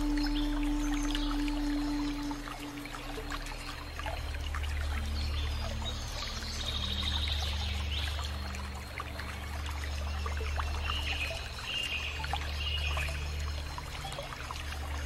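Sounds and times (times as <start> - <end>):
held low notes: 0.0 - 11.4
film soundtrack crackle and hiss: 0.0 - 15.0.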